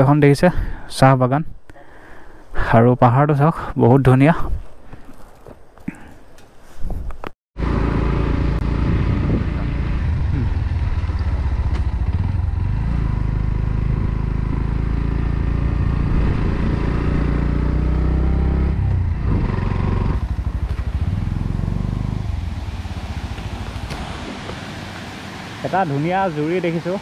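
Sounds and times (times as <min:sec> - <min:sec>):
motorcycle engine running: 0:07.6 - 0:26.8.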